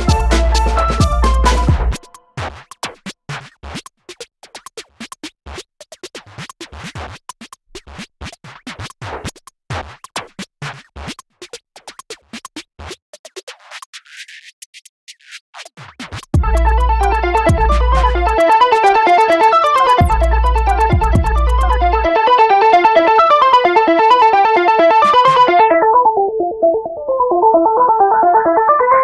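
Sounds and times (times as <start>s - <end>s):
background music: 0.0s - 2.3s, 16.4s - 29.0s.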